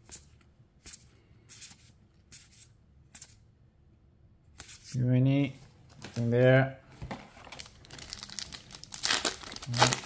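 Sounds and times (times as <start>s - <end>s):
cards swishing against cards: 0.0s - 3.4s, 4.6s - 5.0s.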